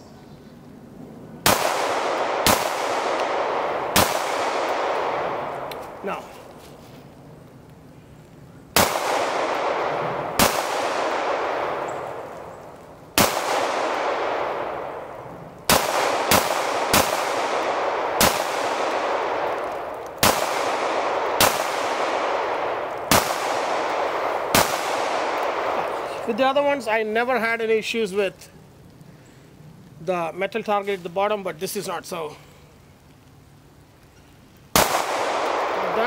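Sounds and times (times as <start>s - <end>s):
pistol shots with echo: 1.4s - 6.2s, 8.8s - 12.6s, 13.2s - 26.4s, 34.8s - 36.0s.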